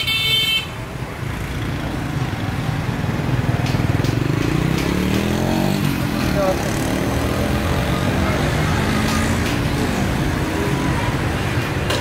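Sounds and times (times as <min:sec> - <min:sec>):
car horn toot: 0:00.0 - 0:00.7
traffic engine rumble: 0:00.0 - 0:12.0.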